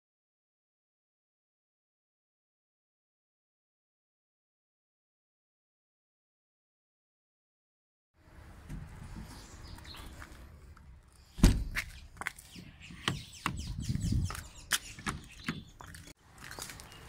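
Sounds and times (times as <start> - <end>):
heavy thump: 11.4 - 11.8.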